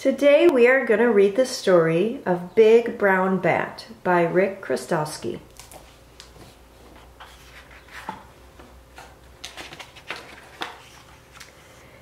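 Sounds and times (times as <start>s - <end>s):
book pages turning: 5.5s - 11.6s.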